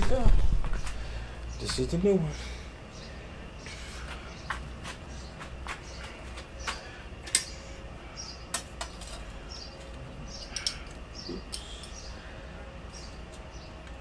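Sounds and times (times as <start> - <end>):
small metal clicks and clinks: 10.4 - 12.0.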